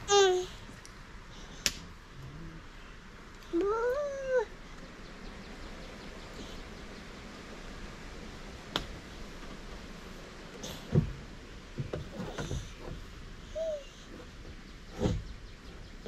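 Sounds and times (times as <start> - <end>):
toddler squealing whine: 13.5 - 14.0.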